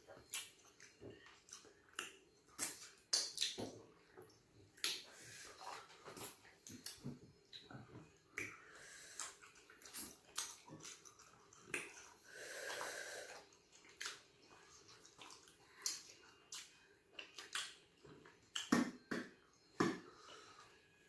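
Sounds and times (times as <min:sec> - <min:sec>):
wet mouth clicks and smacks: 0:00.3 - 0:03.8, 0:09.2 - 0:12.1, 0:15.2 - 0:17.8, 0:18.5 - 0:19.2.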